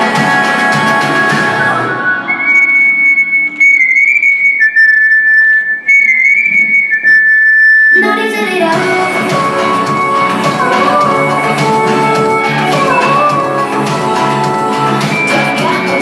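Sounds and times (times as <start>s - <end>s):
music with drums: 0.0s - 1.9s, 8.8s - 16.0s
lower held tone: 1.6s - 8.2s
high whistle-like tone: 1.8s - 8.2s, 15.0s - 16.0s.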